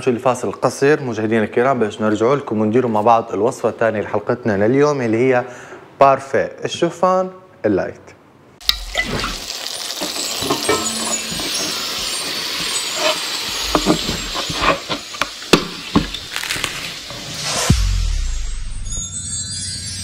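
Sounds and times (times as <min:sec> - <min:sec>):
steady hiss: 0:09.2 - 0:17.8.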